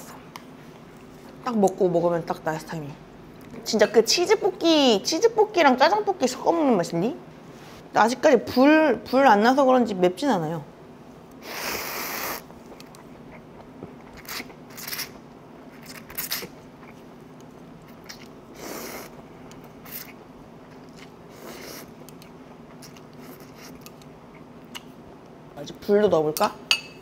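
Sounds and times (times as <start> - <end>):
person slurping noodles: 11.4 - 12.5, 18.1 - 19.1
person chewing: 11.8 - 17.1, 17.8 - 19.2, 19.8 - 24.9.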